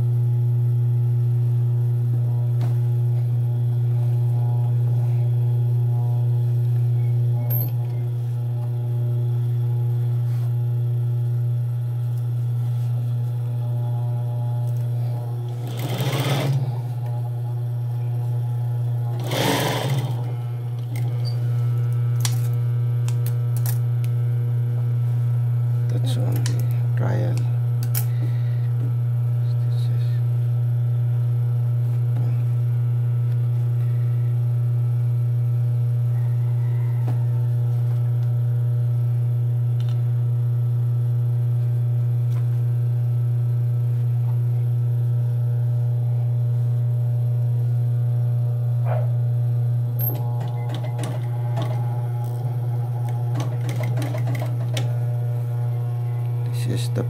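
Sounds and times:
sewing machine motor humming: 13.6s - 22.3s, 49.9s - 57.0s.

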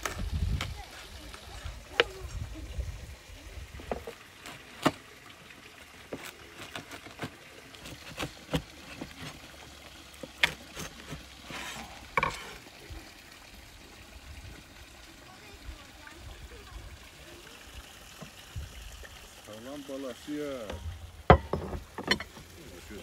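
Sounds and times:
wooden platters knocking on table: 21.3s - 22.3s.

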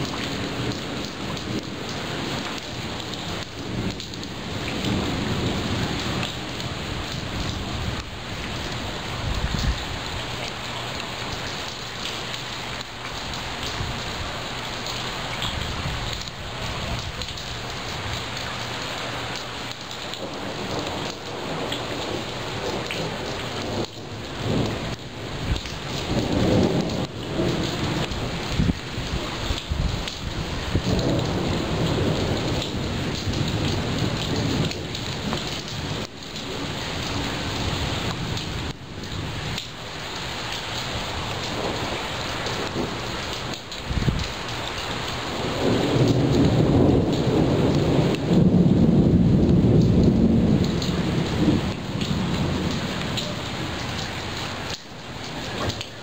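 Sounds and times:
thunder rolling: 0.0s - 9.9s, 20.0s - 39.6s, 45.3s - 54.4s
steady rain falling: 0.0s - 56.0s.

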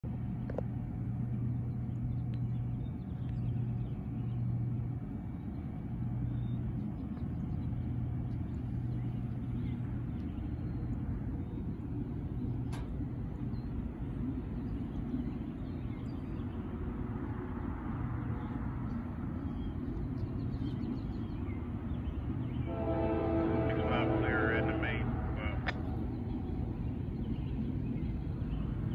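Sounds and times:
distant diesel locomotive rumble: 0.0s - 28.9s
locomotive air horn chord: 22.7s - 26.1s.

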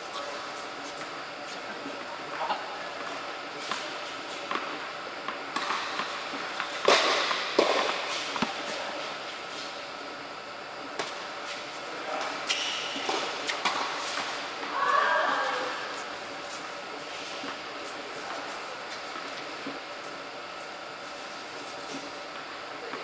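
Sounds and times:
tennis balls bouncing on court: 4.5s - 8.8s
tennis balls struck by rackets: 4.5s - 8.8s.

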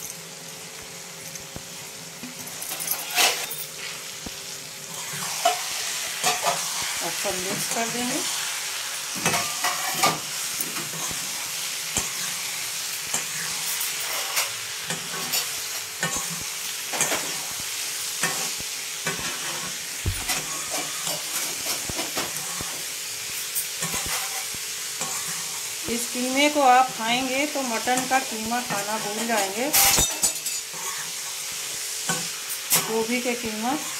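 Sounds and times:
vegetables sizzling in a pan: 0.0s - 33.9s
spatula scraping and knocking pan: 9.1s - 11.3s, 18.2s - 22.9s, 23.7s - 25.6s.

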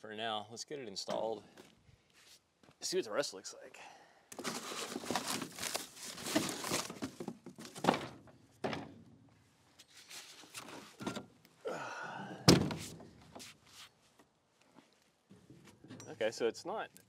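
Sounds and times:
cardboard and packing rustling: 4.3s - 8.2s.

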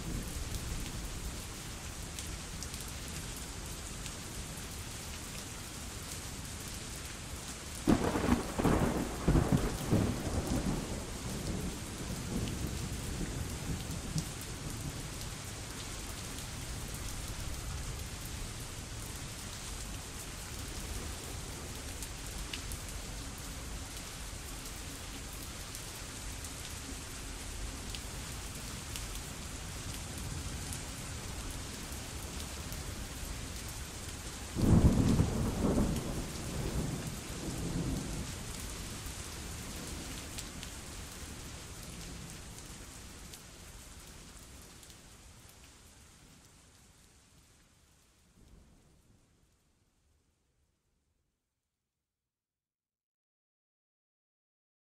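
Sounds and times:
heavy rain: 0.0s - 49.6s
low rolls of thunder: 7.9s - 15.0s, 34.5s - 38.5s.

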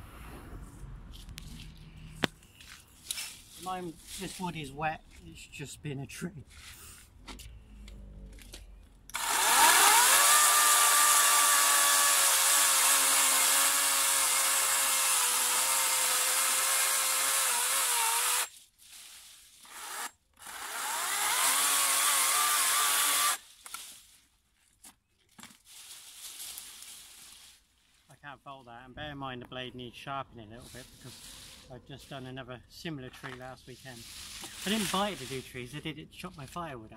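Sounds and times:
branches rustling: 1.1s - 5.4s, 18.2s - 28.2s, 30.6s - 32.2s, 33.2s - 36.6s
chainsaw cutting wood: 9.1s - 18.5s, 19.6s - 23.8s, 34.4s - 35.3s.

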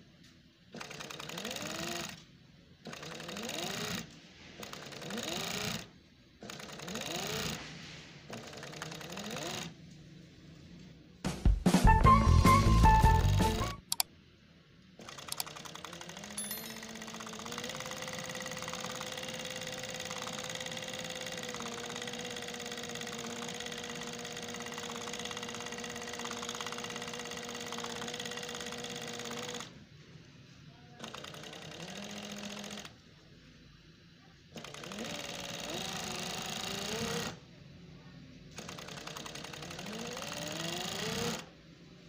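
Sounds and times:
sewing machine stitching: 0.7s - 2.2s, 2.8s - 7.7s, 8.3s - 9.8s, 15.0s - 29.8s, 31.0s - 33.0s, 34.5s - 37.4s, 38.5s - 41.5s.

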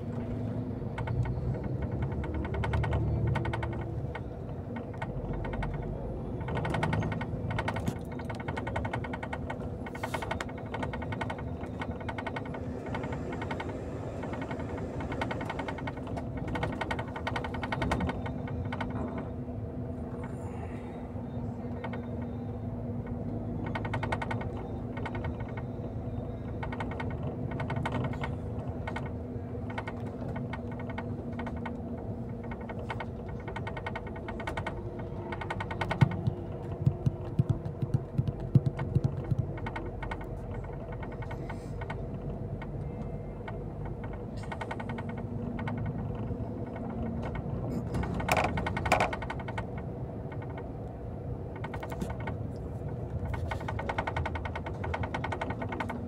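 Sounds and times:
vehicle engine hum: 0.0s - 56.0s
clicking rattles: 0.2s - 19.3s, 23.2s - 56.0s.

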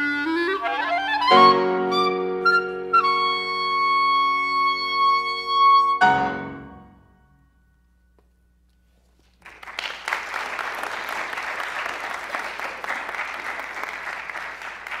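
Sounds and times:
audience applause: 9.4s - 15.0s.

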